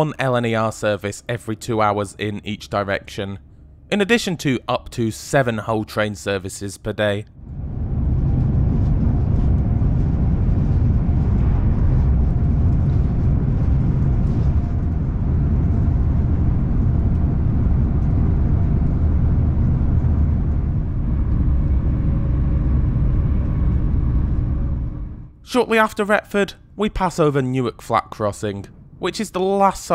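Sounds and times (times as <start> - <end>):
faint steady tonal hum: 0.0 - 29.9
train rumble from inside carriage: 7.5 - 25.3.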